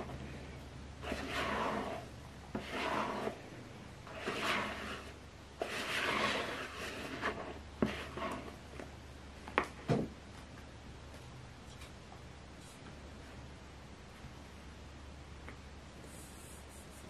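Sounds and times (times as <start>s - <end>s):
spatula scraping batter in bowl: 1.0s - 8.8s.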